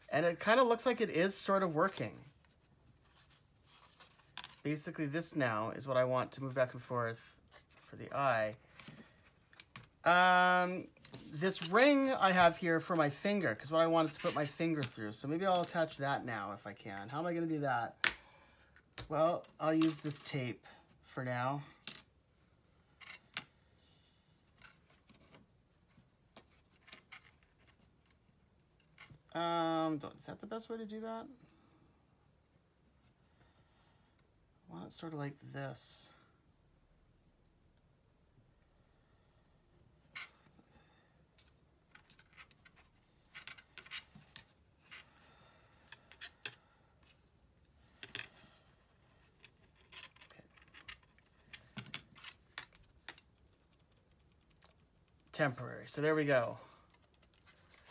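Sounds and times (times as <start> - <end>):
small clicks and scratches: 24.6 - 29.2, 49.1 - 55.6, 56.3 - 57.9.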